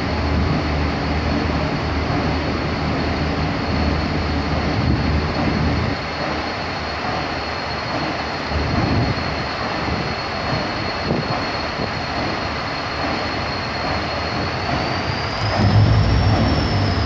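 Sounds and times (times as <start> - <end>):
diesel locomotive engine rumbling: 0.0 - 17.0.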